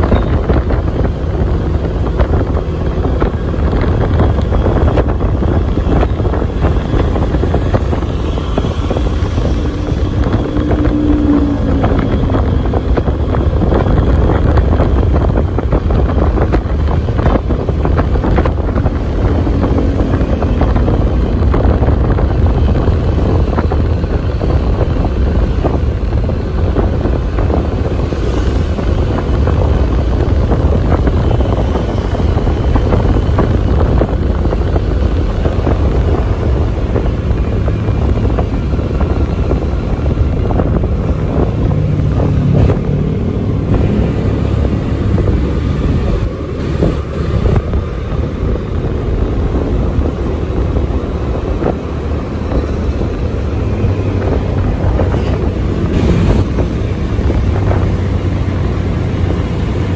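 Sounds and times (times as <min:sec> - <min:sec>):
vehicle engine rumble: 0:00.0 - 0:59.9
wind noise on microphone: 0:00.0 - 0:59.9.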